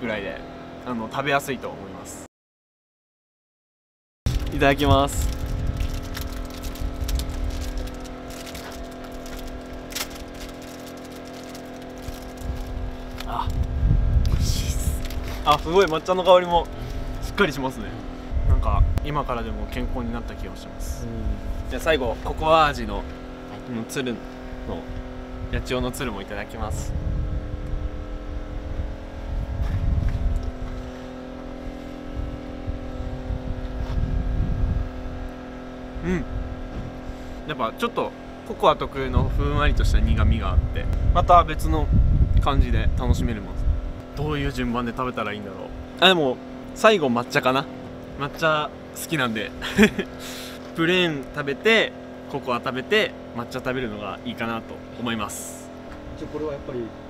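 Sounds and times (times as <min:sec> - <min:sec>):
wind rumbling on microphone: 0:04.3 - 0:10.7, 0:11.4 - 0:23.4, 0:24.4 - 0:35.5, 0:38.9 - 0:44.8
low hum: 0:04.3 - 0:57.0.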